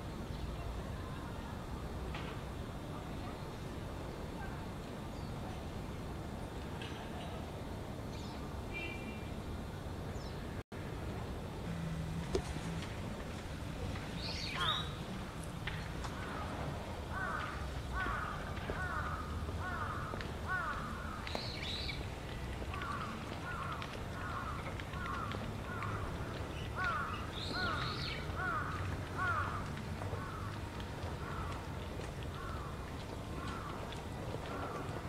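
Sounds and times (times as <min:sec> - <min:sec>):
crow cawing: 0:17.1 - 0:21.3, 0:22.7 - 0:26.1, 0:26.8 - 0:30.6, 0:31.2 - 0:31.5, 0:32.4 - 0:32.8, 0:33.4 - 0:33.8.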